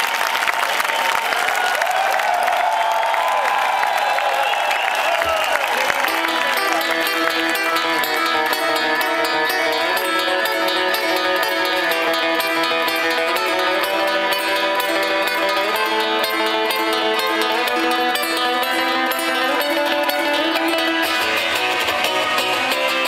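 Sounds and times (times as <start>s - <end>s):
electric guitar held notes: 5.9s - 23.0s.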